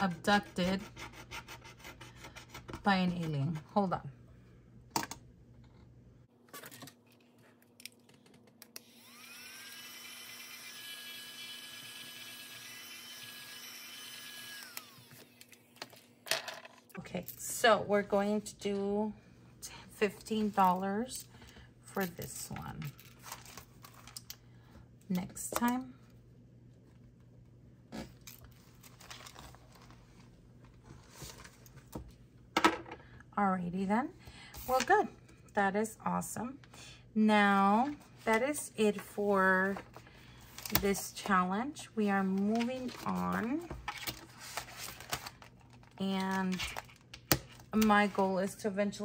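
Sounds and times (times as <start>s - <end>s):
small electric motor whine: 8.8s - 15.6s
paper rustling and crinkling: 28.5s - 31.9s, 42.4s - 46.0s.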